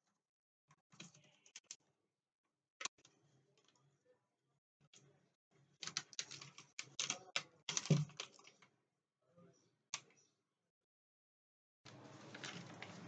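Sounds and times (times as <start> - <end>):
plastic sheet crackling and clicking: 5.8 - 8.7, 11.9 - 13.0.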